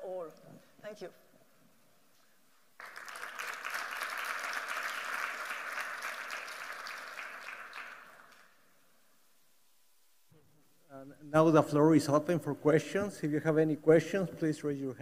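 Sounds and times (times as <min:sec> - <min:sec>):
audience applauding: 0:02.8 - 0:08.6.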